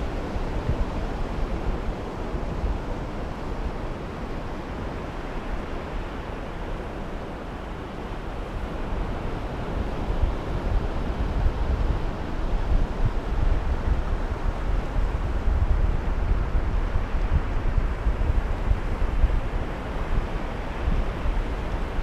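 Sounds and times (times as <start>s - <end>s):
wind buffeting microphone: 8.6s - 22.0s.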